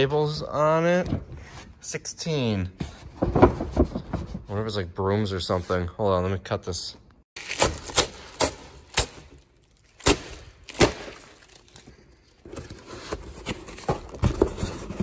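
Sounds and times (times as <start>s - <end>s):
cardboard flaps scraping and rustling: 12.5s - 15.0s.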